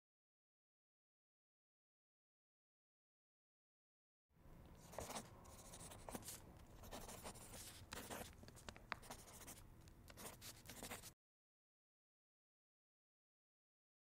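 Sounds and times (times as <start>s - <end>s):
pen scratching and scribbling: 4.8s - 11.2s.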